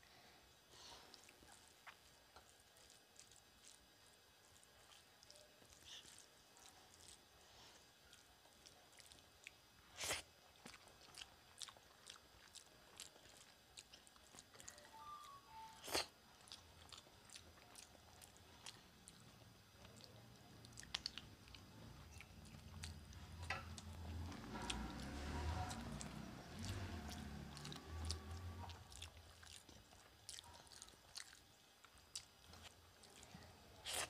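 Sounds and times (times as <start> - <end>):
person chewing food: 0.7 - 34.0.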